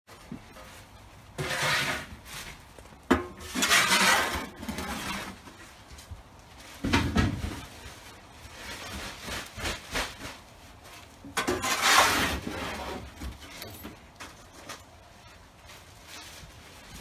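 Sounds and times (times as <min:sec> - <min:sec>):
debris shovelled into plastic bag: 0:03.4 - 0:05.5, 0:07.7 - 0:13.2
loud rustling rush: 0:03.5 - 0:13.2, 0:15.0 - 0:17.0.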